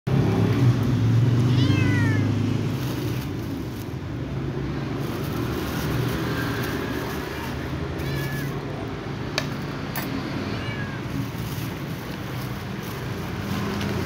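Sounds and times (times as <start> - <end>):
kitten meowing: 1.5 - 2.4, 7.2 - 8.8, 10.4 - 11.3.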